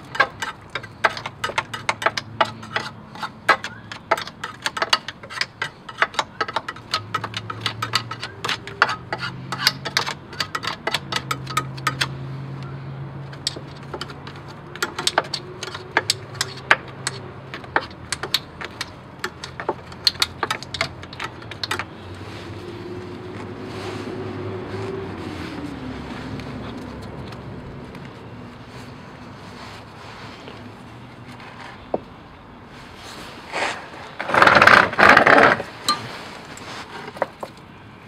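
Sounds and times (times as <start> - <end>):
brush scrubbing metal: 0.0 - 12.1.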